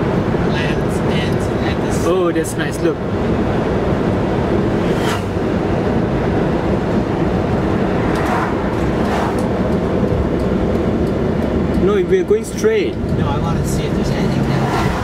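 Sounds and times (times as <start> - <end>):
car passing: 0.0 - 12.0, 12.8 - 15.0
car engine and road rumble: 0.0 - 15.0
motorcycle passing: 4.7 - 5.8, 7.2 - 10.1.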